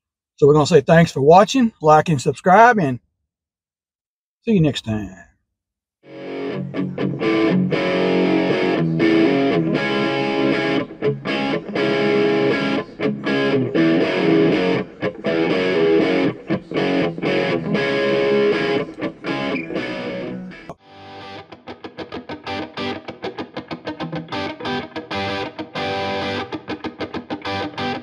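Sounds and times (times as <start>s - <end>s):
distorted electric guitar music: 6.1s - 28.0s.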